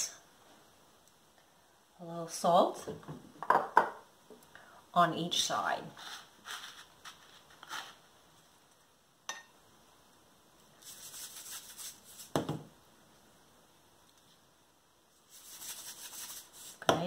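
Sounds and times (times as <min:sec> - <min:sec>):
hands rustling crumb coating: 0:06.0 - 0:08.0
salt shaker shaken: 0:10.8 - 0:12.4, 0:15.2 - 0:16.8.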